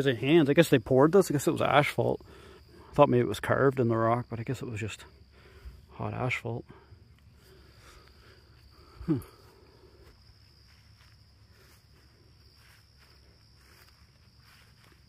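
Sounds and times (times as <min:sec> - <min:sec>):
crickets trilling: 0:00.0 - 0:15.0
faint footsteps: 0:07.1 - 0:15.0.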